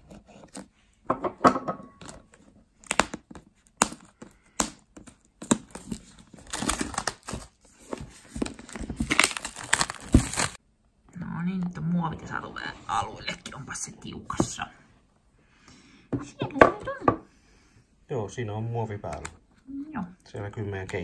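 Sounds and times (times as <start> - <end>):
plastic wrap crinkling: 2.8 - 10.6.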